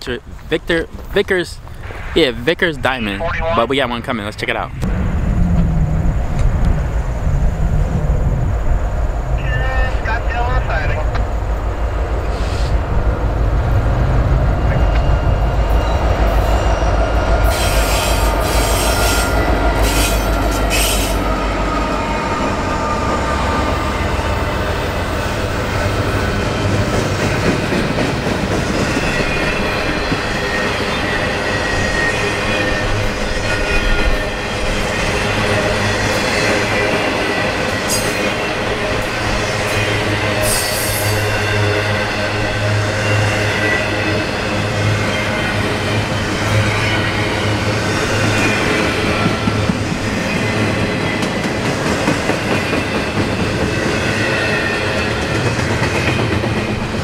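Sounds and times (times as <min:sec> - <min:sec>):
diesel locomotive rumble: 0:04.4 - 0:57.0
train wheels squealing: 0:14.6 - 0:24.0, 0:39.4 - 0:47.2.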